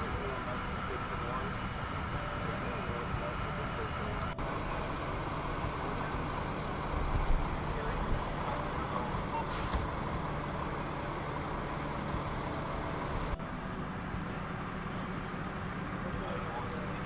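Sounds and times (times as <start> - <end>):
diesel truck engine idling: 0.0 - 17.0
short hiss: 9.4 - 10.0.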